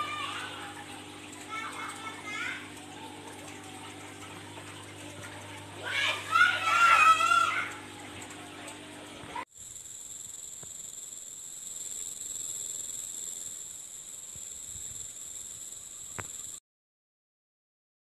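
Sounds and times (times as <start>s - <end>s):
high-pitched insect chorus: 9.5s - 16.6s.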